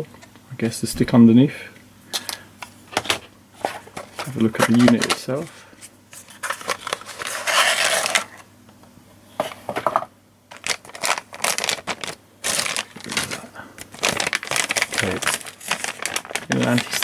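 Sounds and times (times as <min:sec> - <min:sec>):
plastic bag crinkling: 0:10.5 - 0:17.0.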